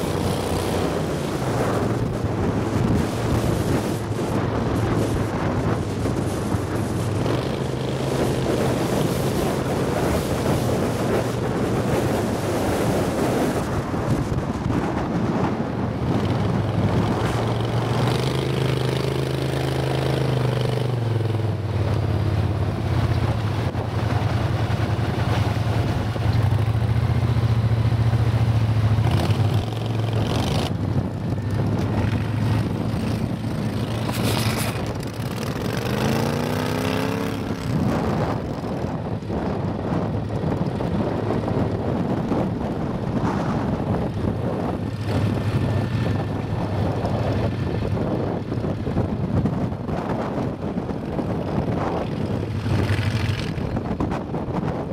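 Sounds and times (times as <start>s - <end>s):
mud motor engines droning: 0.0s - 42.7s.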